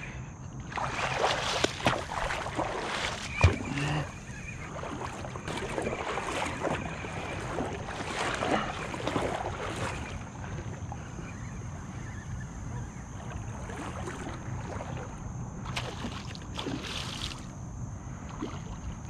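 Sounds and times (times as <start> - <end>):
water splashing from thrashing fish: 0.7 - 10.3, 13.6 - 17.4.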